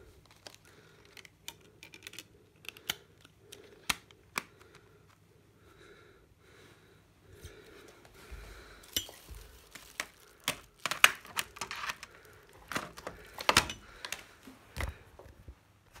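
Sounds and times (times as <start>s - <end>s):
plastic cases clacking: 9.0s - 15.4s.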